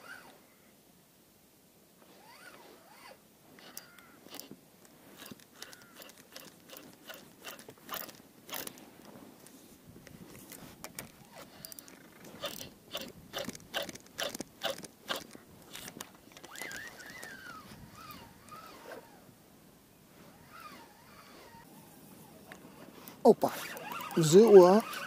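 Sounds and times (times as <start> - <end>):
fishing reel clicking: 2.2 - 4.5, 5.2 - 8.8, 10.9 - 19.0, 23.5 - 25.0.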